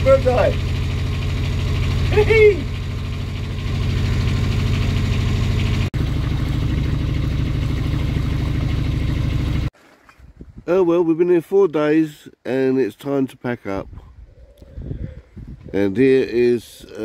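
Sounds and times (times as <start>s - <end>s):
boat engine running: 0.0s - 9.7s.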